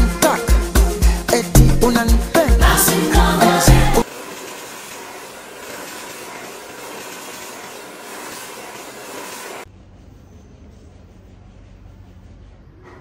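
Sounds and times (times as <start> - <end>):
hair dryer blowing: 2.6 - 9.7.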